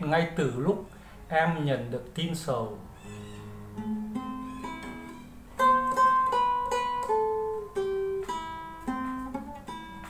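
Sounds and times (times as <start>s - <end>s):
acoustic guitar picked melody: 2.8s - 10.0s.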